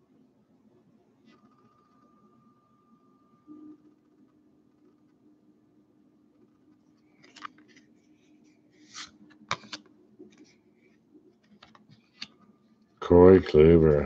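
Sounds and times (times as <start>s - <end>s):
cards sliding and flicking: 8.8s - 10.5s.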